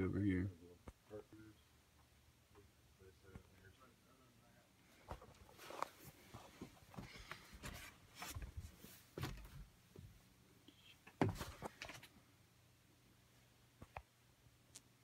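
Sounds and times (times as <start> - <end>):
faint low hum: 0.0 - 15.0
rustling: 4.9 - 9.7.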